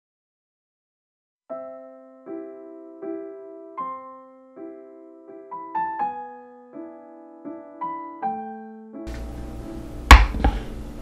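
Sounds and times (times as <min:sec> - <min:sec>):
gentle piano music: 0:01.5 - 0:11.0.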